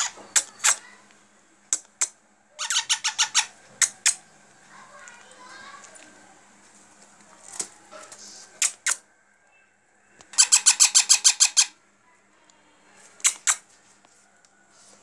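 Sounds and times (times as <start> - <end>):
parakeet chick squawking: 2.6 - 4.2, 10.3 - 11.8.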